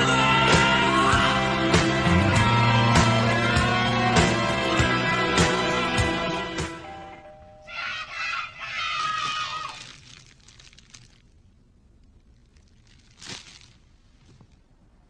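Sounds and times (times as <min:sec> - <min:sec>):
music: 0:00.0 - 0:07.6
plastic candy bag crinkling: 0:08.6 - 0:14.7.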